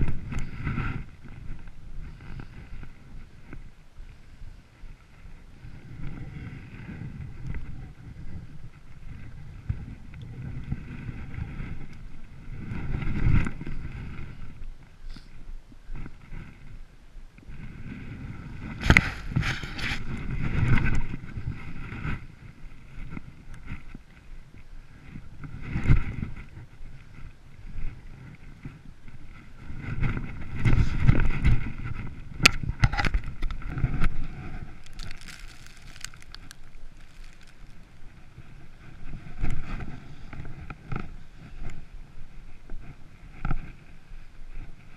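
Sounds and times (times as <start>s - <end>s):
clothing and wind rubbing microphone: 0.0s - 44.9s
handling and clothing noise: 34.4s - 38.0s
boots stepping on snow: 34.8s - 38.0s.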